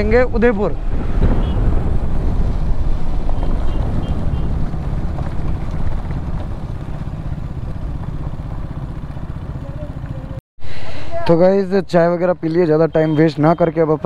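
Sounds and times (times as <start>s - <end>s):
wind rushing: 0.0s - 7.9s
motorcycle engine: 0.8s - 10.4s.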